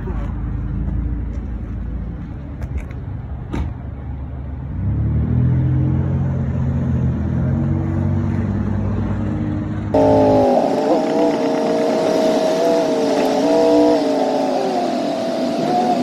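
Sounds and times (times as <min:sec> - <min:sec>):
vehicle engine running: 0:08.3 - 0:16.0.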